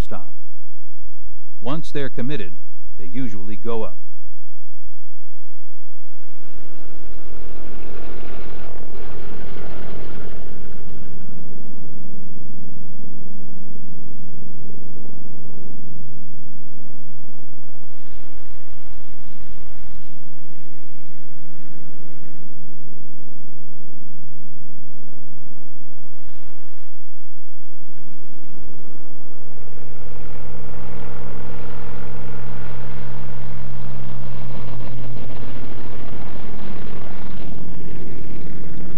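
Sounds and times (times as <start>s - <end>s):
rushing propeller noise: 5.1s - 12.3s.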